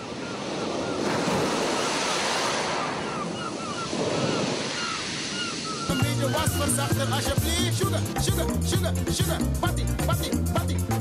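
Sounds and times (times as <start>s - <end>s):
waves washing: 0.0s - 8.2s.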